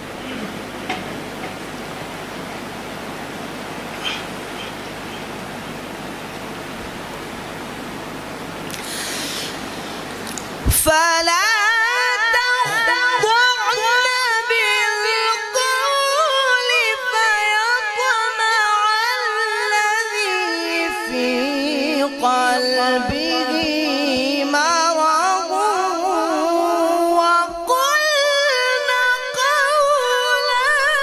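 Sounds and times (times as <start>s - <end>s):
man reciting melodically: 10.6s - 31.0s.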